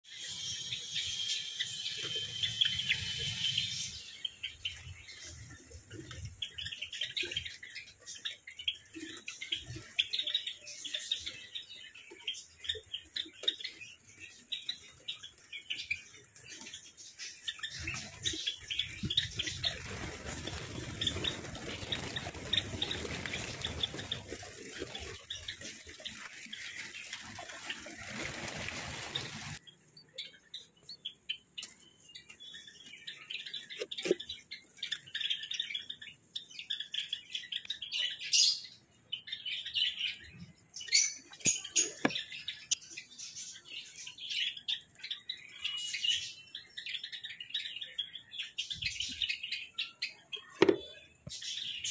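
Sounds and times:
sparrows chirping: 0.0 - 51.9
dense rustling noise: 18.0 - 29.6.

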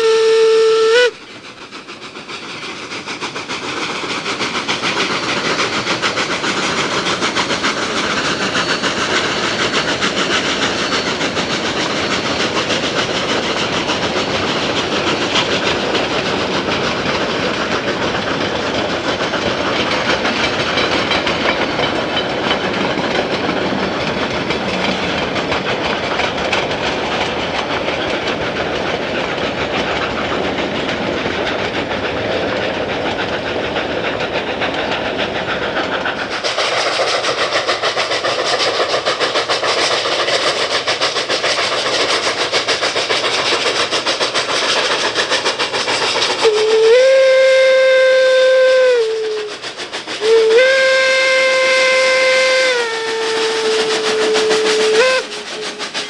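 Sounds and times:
steam locomotive whistle: 0.0 - 1.2, 46.4 - 56.0
steady hiss: 47.7 - 51.0.

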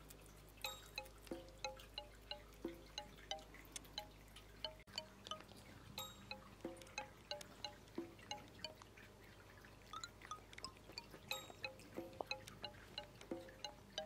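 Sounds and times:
chime-like bell melody: 6.0 - 6.4, 11.3 - 11.9.

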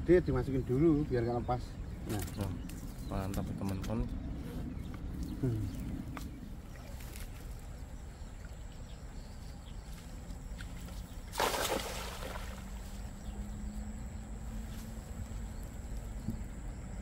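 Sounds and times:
low steady rumble: 0.0 - 11.3, 12.2 - 17.0
cast net splashing into water: 11.3 - 12.8.

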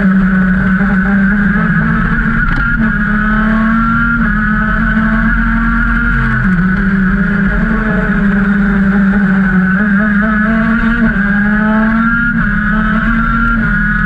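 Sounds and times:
kart engine at racing speed: 0.0 - 14.0.

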